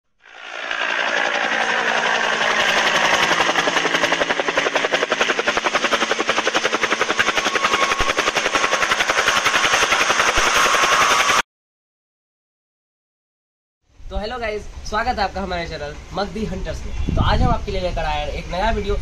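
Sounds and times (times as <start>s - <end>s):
helicopter rotor chopping: 0.1s - 11.4s.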